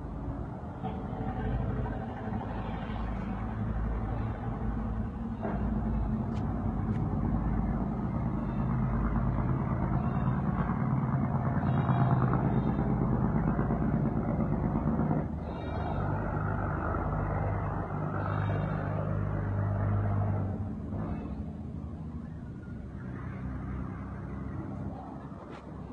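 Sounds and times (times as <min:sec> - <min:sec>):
low engine drone: 0:00.0 - 0:25.9.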